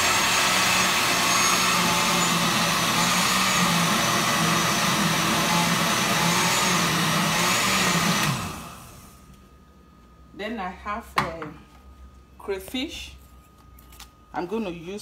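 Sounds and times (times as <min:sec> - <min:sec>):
blender motor running: 0:00.0 - 0:09.2.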